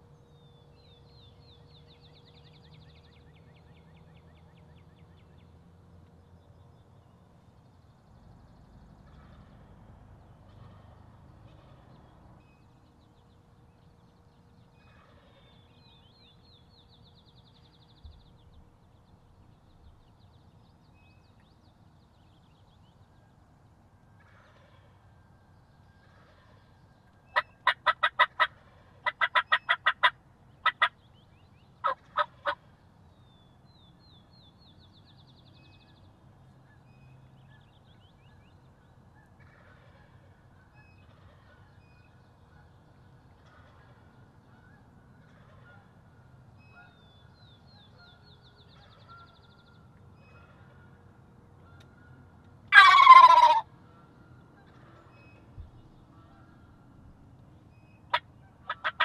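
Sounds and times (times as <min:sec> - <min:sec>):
faint songbird chirps: 0:00.0 - 0:53.2
turkey yelps: 0:27.4 - 0:30.9, 0:31.8 - 0:32.6, 0:52.7 - 0:53.7, 0:58.1 - 0:59.0.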